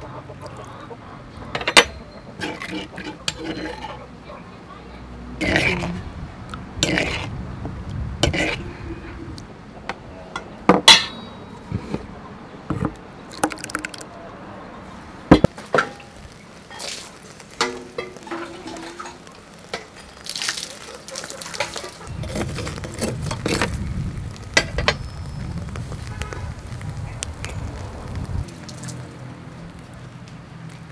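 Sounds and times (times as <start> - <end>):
food grilling over fire: 1.3 - 4.2, 5.1 - 9.6, 14.8 - 30.9.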